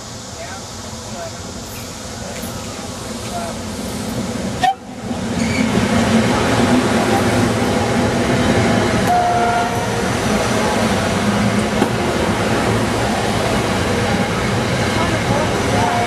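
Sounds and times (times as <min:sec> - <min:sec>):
train passing at speed: 0:00.0 - 0:16.0.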